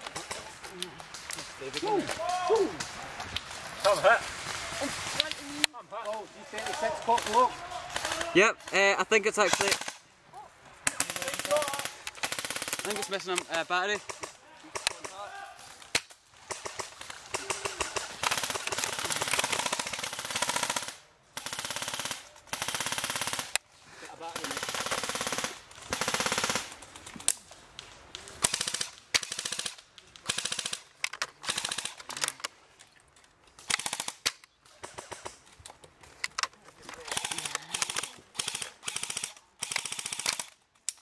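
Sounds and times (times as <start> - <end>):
airsoft guns firing bursts: 6.5 - 10.0, 10.9 - 15.2, 16.4 - 23.6, 24.2 - 26.8, 28.4 - 32.0, 33.7 - 35.4, 37.1 - 40.6.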